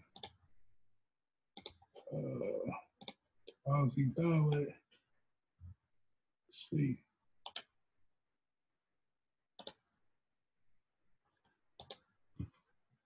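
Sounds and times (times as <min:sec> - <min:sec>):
computer mouse clicks: 0:00.0 - 0:00.4, 0:01.6 - 0:02.1, 0:03.0 - 0:03.2, 0:07.4 - 0:07.7, 0:09.6 - 0:09.9, 0:11.8 - 0:12.1.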